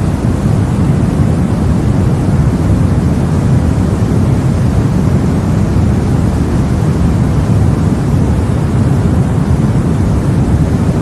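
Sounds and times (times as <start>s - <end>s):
deep rumbling white noise: 0.0s - 11.0s.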